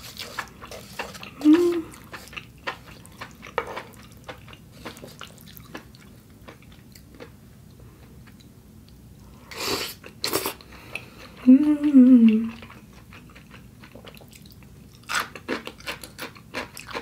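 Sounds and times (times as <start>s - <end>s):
wet chewing: 0.0s - 7.3s.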